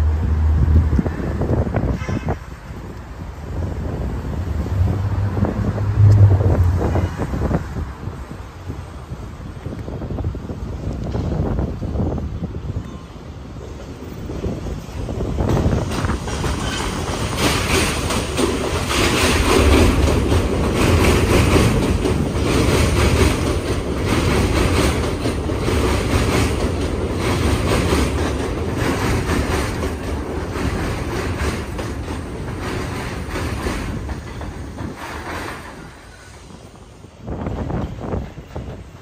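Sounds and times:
subway train passing: 0.0 - 39.0
wheels clattering over rail joints: 13.6 - 36.3.

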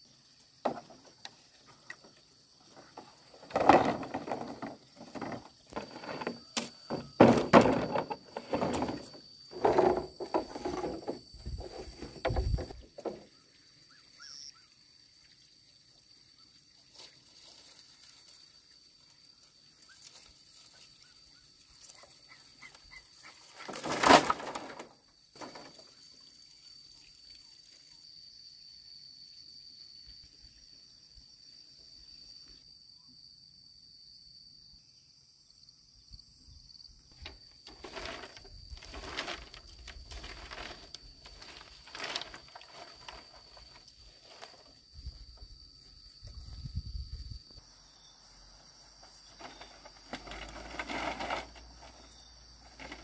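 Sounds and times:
bamboo slats knocking and clattering: 0.6 - 13.3, 23.5 - 25.9, 37.2 - 44.7, 49.1 - 52.1, 52.7 - 53.0
hollow wooden knocks: 2.9 - 13.3.

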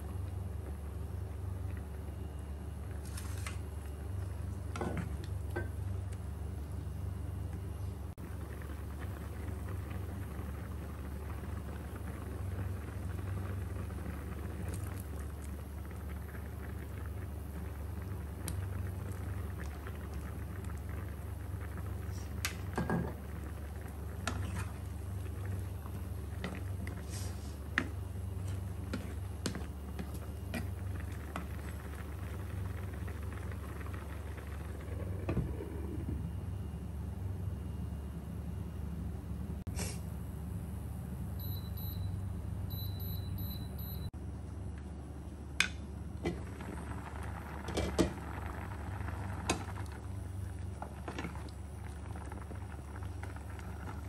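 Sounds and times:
low hum: 0.0 - 54.0
sauce boiling in frying pan: 8.1 - 37.8, 45.8 - 54.0.

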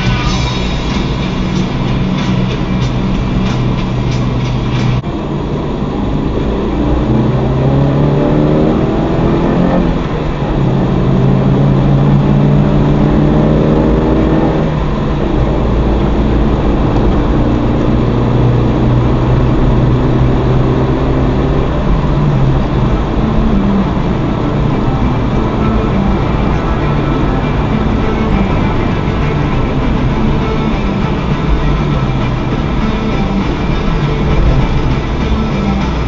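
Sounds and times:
road rumble: 0.0 - 36.0
van engine accelerating: 0.0 - 36.0.

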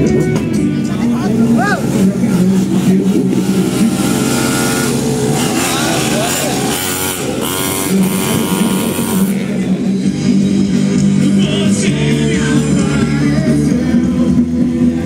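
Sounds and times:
rock music with low held notes: 0.0 - 15.0.

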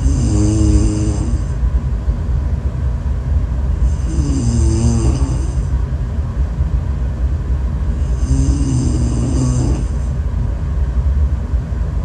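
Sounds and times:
woman snoring: 0.0 - 1.6, 3.8 - 5.7, 7.9 - 10.1
steady low rumble: 0.0 - 12.0.

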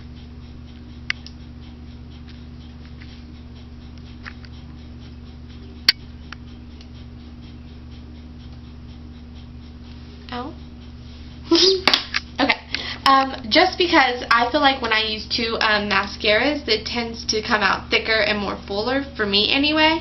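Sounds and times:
steady low hum: 0.0 - 20.0
eyelash curler clicks: 1.0 - 1.4.

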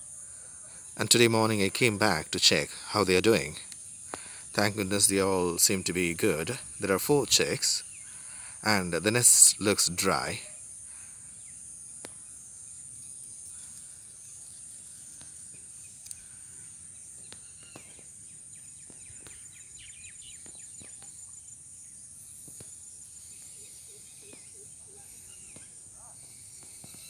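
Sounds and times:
insects droning: 0.0 - 27.0
bird chirps: 13.0 - 27.0
faint clicks: 15.1 - 16.4.

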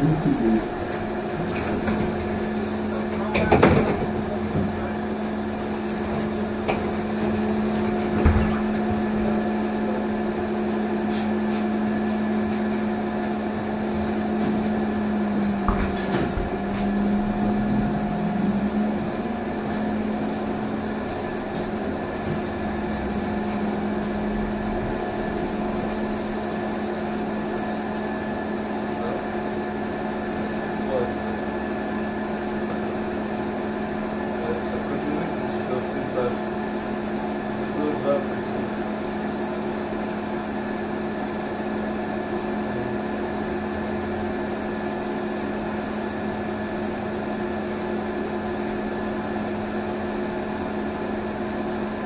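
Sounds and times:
road noise: 0.0 - 28.9
trolleybus electric hum: 0.0 - 52.0.

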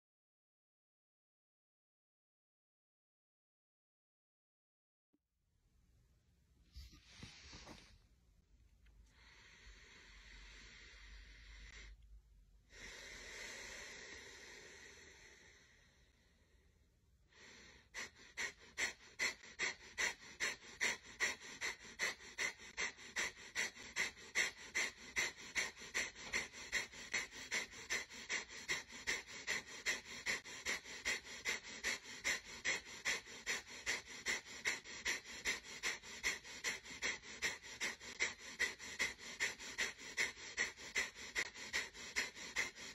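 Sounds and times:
slow deep breaths: 8.8 - 42.9.

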